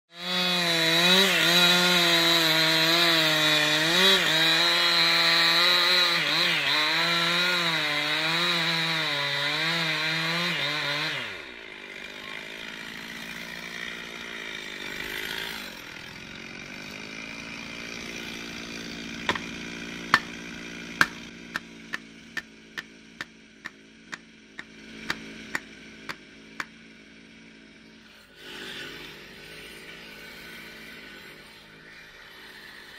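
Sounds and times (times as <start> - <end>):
chainsaw cutting wood: 0.1 - 32.9
sharp knocks: 19.3 - 19.5, 20.1 - 20.3, 21.0 - 23.3.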